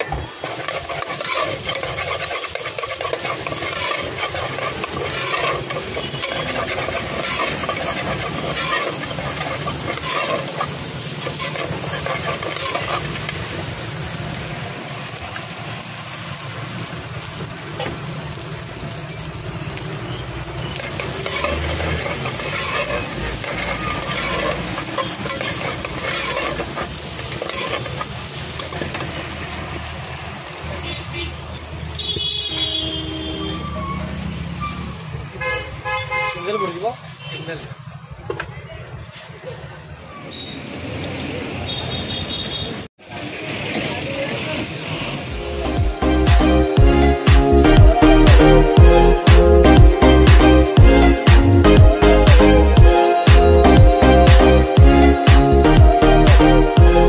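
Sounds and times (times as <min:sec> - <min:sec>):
metal spatula scraping a pot: 0:00.0 - 0:13.4, 0:20.8 - 0:29.2
rice sizzling: 0:00.0 - 0:57.0.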